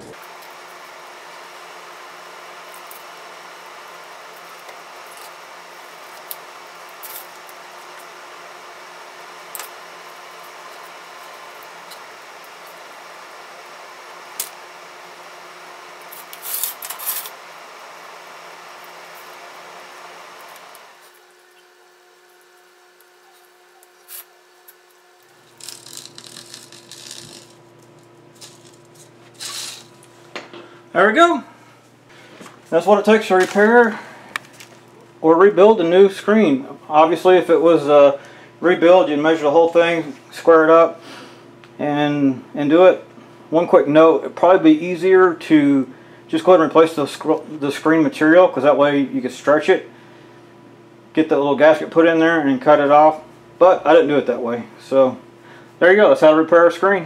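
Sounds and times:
crackling and scraping of screen gasket: 0:25.3 - 0:27.6.

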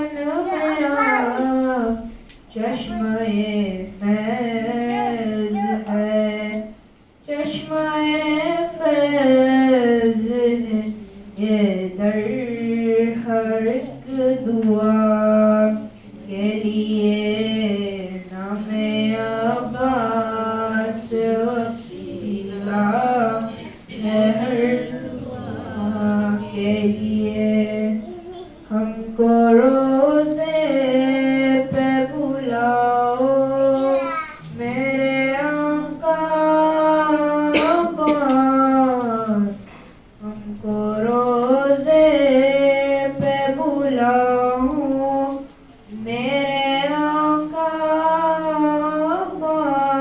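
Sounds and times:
boy chanting into a microphone: 0:00.0 - 0:50.0.

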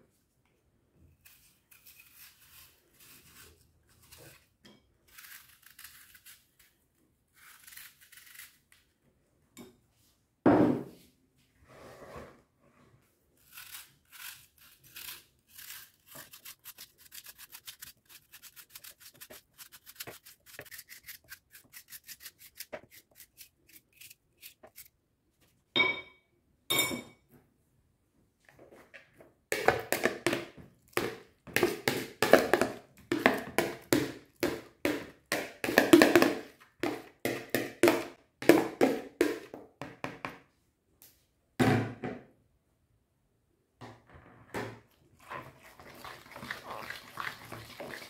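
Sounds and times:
knife cutting apple: 0:01.2 - 0:08.8, 0:13.4 - 0:25.0.

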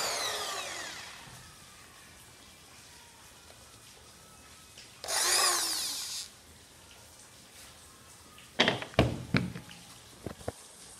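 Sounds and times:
wood and drill knocking: 0:00.0 - 0:01.2, 0:05.0 - 0:06.3
power drill spinning: 0:00.0 - 0:01.4, 0:05.0 - 0:06.3.

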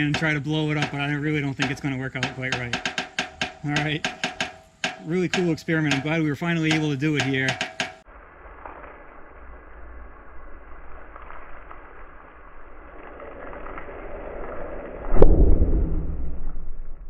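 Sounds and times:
faint ticking: 0:00.0 - 0:08.0
steel drum bang: 0:00.0 - 0:08.0.

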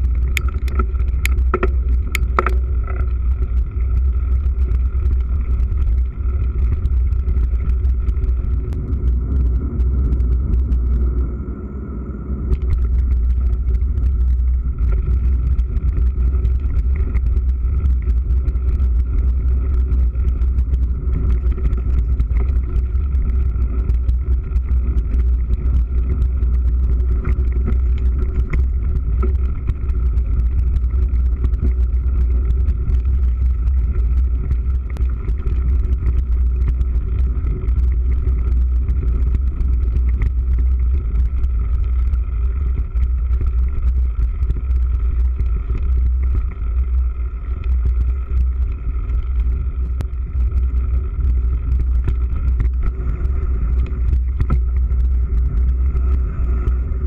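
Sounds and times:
bike rattles and knocks: 0:00.0 - 0:03.1
wind rumble: 0:00.0 - 0:57.0.

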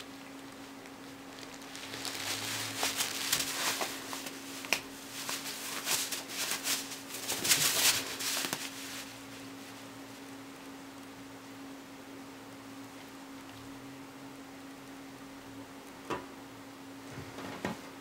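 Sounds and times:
cat paws scratching on fabric: 0:00.0 - 0:10.2
faint steady hum: 0:00.0 - 0:18.0.

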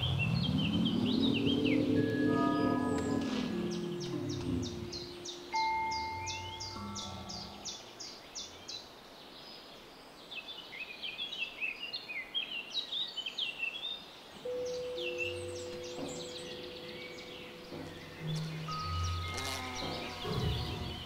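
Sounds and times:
small birds chirping: 0:00.0 - 0:21.0
steady held tones: 0:01.2 - 0:07.4, 0:14.5 - 0:21.0.

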